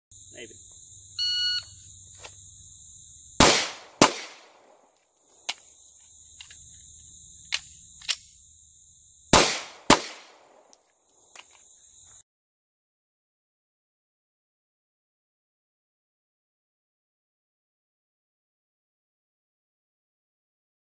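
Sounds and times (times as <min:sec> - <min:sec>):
faint gunshots: 0:03.4 - 0:04.8, 0:09.3 - 0:10.7
handgun shots: 0:03.4 - 0:04.8, 0:09.4 - 0:10.8.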